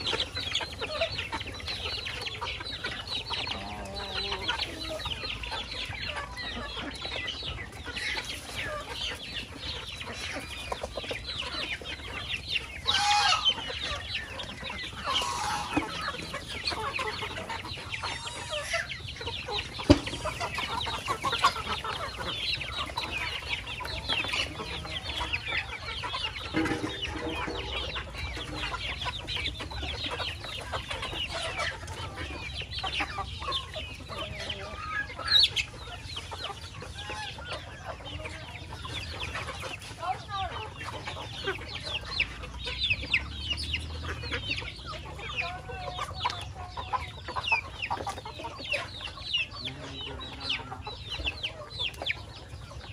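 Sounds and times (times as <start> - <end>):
louder chicken calls: 0.0 - 52.8
chickens clucking: 0.0 - 52.9.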